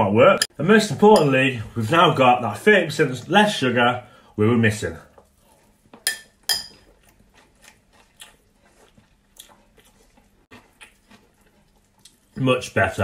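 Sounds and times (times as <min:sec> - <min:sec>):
person chewing cereal: 0:05.0 - 0:12.8
metal spoon clicking on glass bowl: 0:06.1 - 0:06.7.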